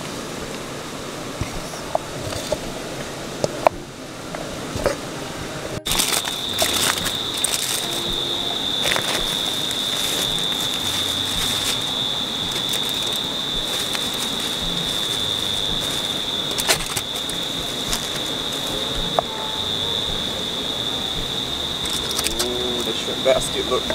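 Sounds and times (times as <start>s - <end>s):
river water rushing: 0.0s - 23.9s
high insect buzz: 5.0s - 23.9s
sharp crackles: 5.8s - 19.3s.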